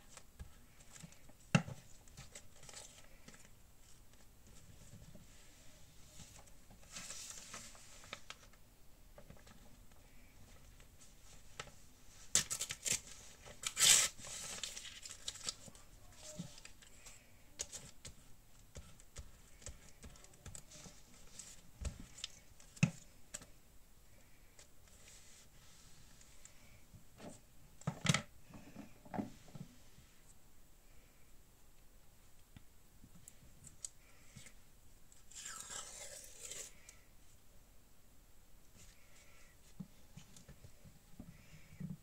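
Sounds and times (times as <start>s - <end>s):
paper rustling: 6.1s - 8.6s.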